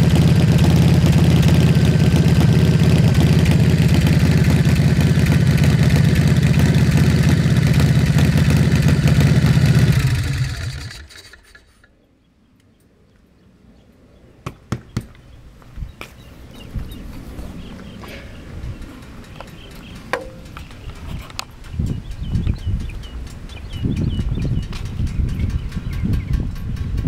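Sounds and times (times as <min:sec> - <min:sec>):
motorcycle engine idling: 0:00.0 - 0:11.8, 0:17.8 - 0:27.0
engine shutting off: 0:00.0 - 0:11.9, 0:18.7 - 0:27.0.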